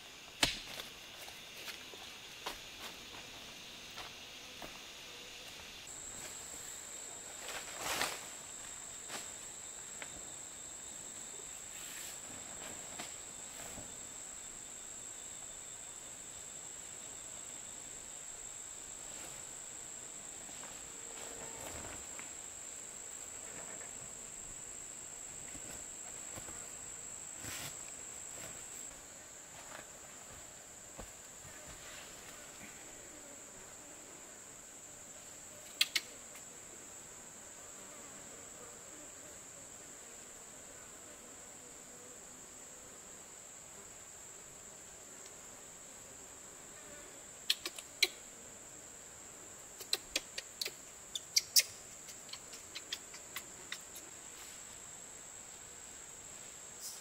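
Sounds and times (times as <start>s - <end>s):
insects high-pitched calling: 0.0s - 29.0s, 35.6s - 36.5s, 47.0s - 48.4s, 49.5s - 55.2s.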